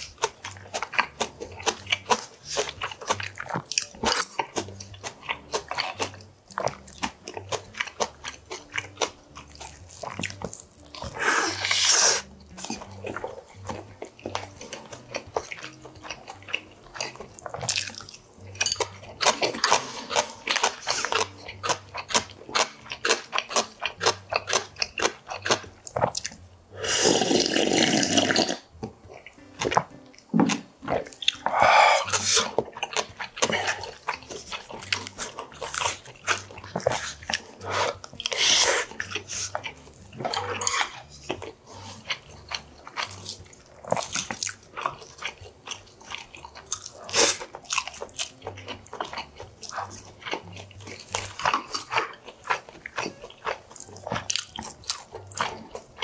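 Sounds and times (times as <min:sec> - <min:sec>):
man chewing and smacking: 0:00.0 - 0:56.0
wet slurps from a bowl: 0:26.8 - 0:28.6.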